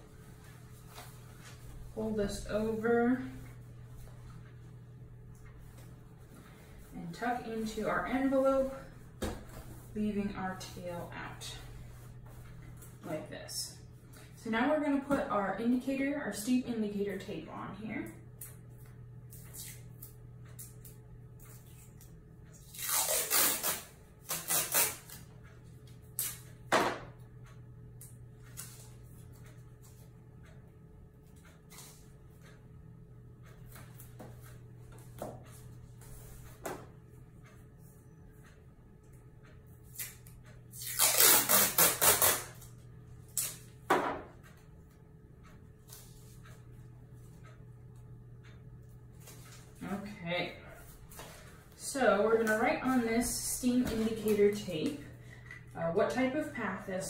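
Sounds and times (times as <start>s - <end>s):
steady low hum: 0.0s - 57.0s
tape ripping off roll: 22.7s - 25.2s, 40.8s - 42.6s.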